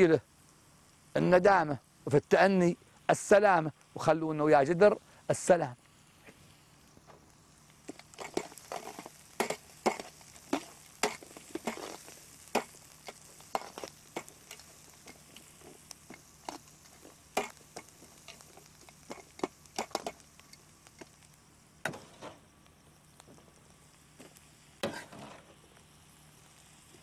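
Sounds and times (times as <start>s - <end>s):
faint sizzle of frying: 0.0s - 27.0s.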